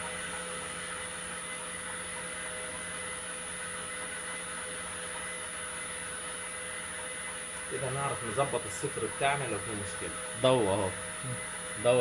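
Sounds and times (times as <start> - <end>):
water pumps humming: 0.0 - 12.0.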